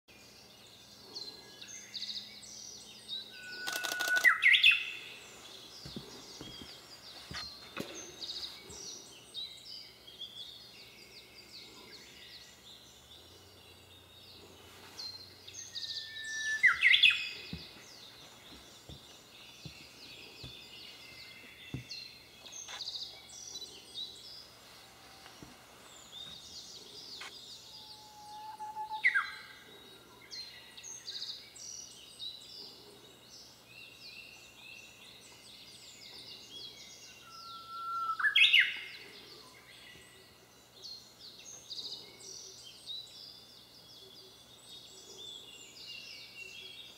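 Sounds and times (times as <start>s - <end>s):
faint high chirping: 0.2s - 31.6s
bird singing whistled song: 1.5s - 5.0s, 15.5s - 17.6s, 27.2s - 29.6s, 36.6s - 38.9s.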